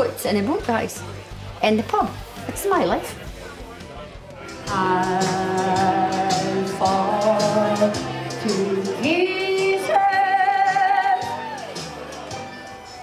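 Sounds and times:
backing music: 0.0 - 13.0
woman singing into a microphone: 4.7 - 11.5.

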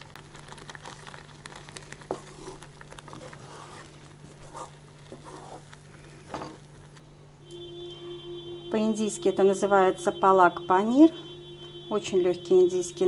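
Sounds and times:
steady low hum: 0.0 - 13.0
spatula scraping in frying pan: 3.3 - 5.7.

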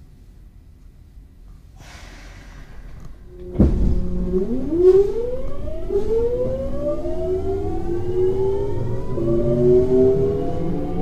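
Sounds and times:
low train running rumble: 1.8 - 11.0
electric train motors whining: 2.9 - 11.0.

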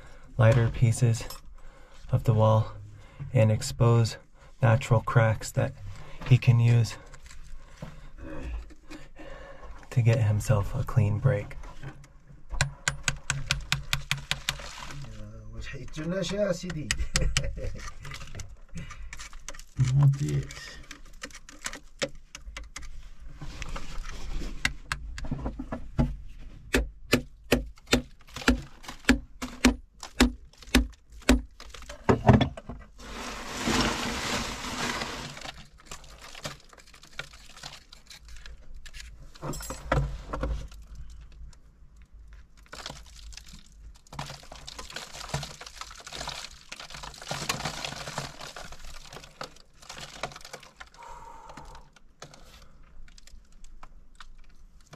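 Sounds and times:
broken rock scraping and shifting: 12.7 - 16.4, 30.0 - 41.5, 42.3 - 51.0.

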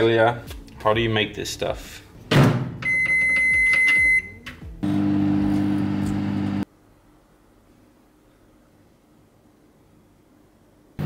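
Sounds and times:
microwave beeping: 2.8 - 6.6
microwave running hum: 4.8 - 6.7.

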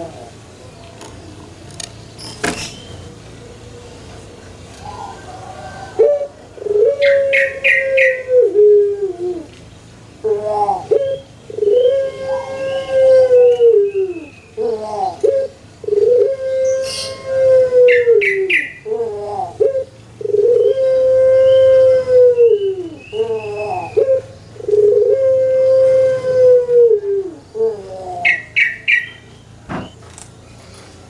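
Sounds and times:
dove cooing: 0.0 - 0.5, 3.4 - 9.6, 10.2 - 29.3
small bird chirping: 0.8 - 3.1.

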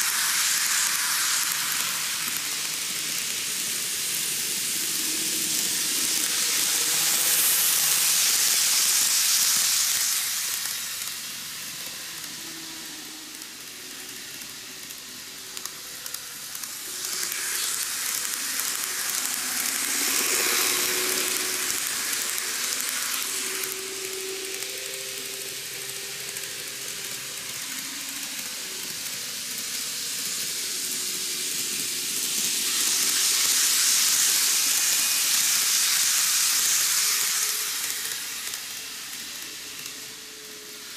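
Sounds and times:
model trains running on track: 0.0 - 40.9.

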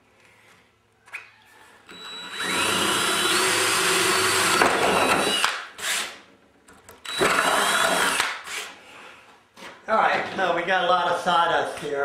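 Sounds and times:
electric drill boring through wood: 1.9 - 6.2, 7.0 - 8.7.

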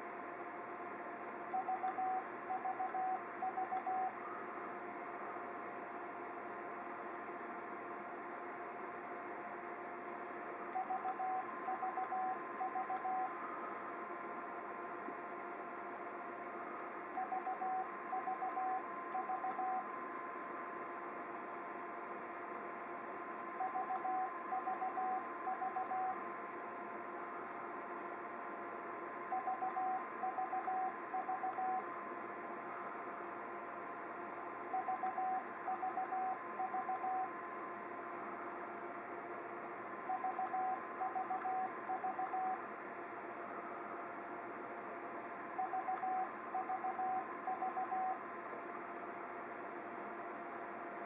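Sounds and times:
faint steady whine: 0.0 - 51.0
morse code beeps: 1.6 - 4.2, 10.8 - 13.3, 17.2 - 19.9, 23.6 - 26.2, 29.3 - 31.8, 34.7 - 37.3, 40.1 - 42.6, 45.6 - 48.2.

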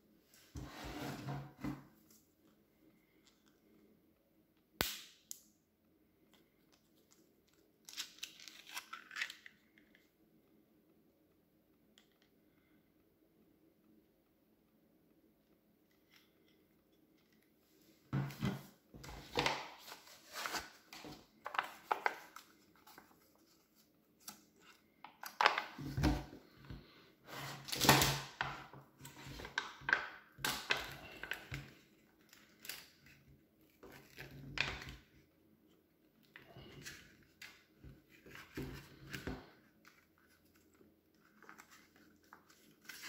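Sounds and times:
plastic and foil wrappers crinkling: 6.9 - 9.8.

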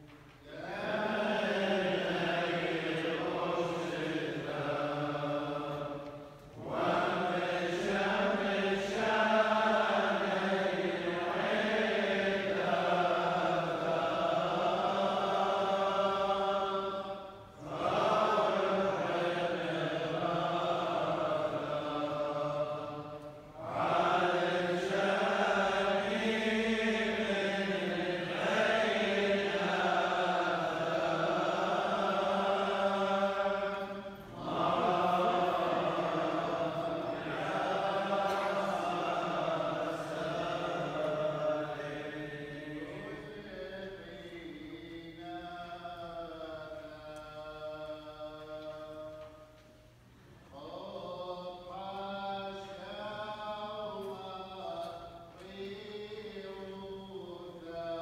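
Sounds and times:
clergy chanting prayers: 0.0 - 58.0.

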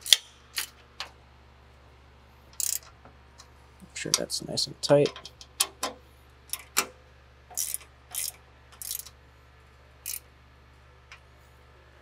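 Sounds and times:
metallic clicks and scrapes of tools: 2.5 - 2.9, 7.5 - 9.2, 10.0 - 10.3.

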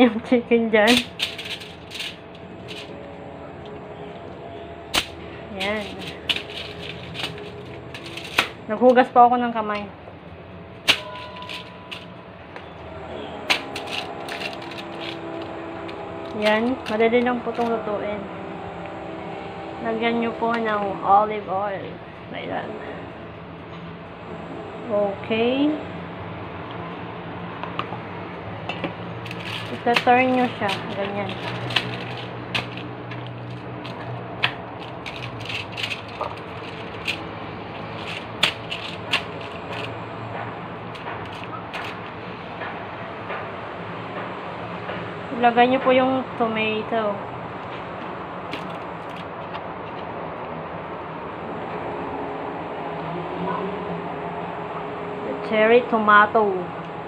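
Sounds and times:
steady low hum: 0.0 - 57.0
foil crinkling: 29.2 - 39.9.

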